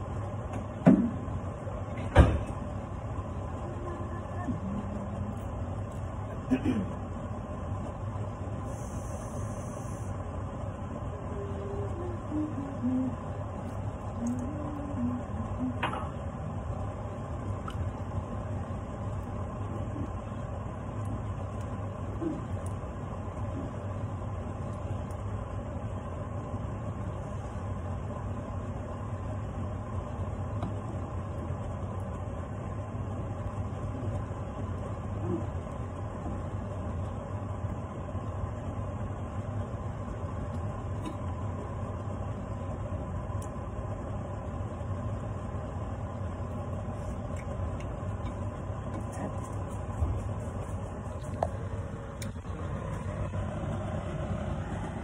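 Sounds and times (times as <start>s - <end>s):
extractor fan humming: 0.0s - 55.0s.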